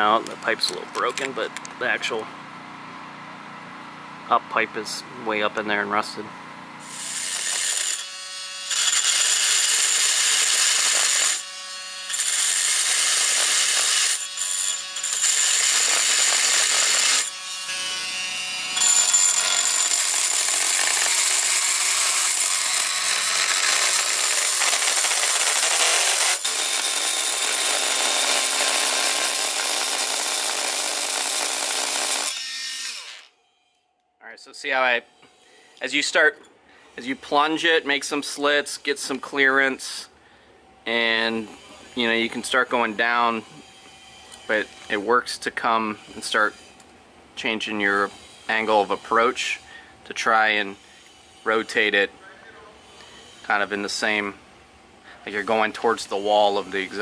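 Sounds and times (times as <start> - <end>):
oscillating multi-tool cutting metal: 6.8 - 33.4, 40.9 - 46.9, 47.6 - 52.1, 52.8 - 54.2, 55.3 - 57.0.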